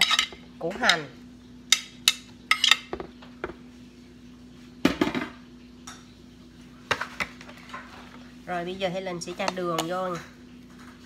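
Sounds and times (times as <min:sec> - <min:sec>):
dishes clinking: 0:00.0 - 0:01.1, 0:01.7 - 0:03.1.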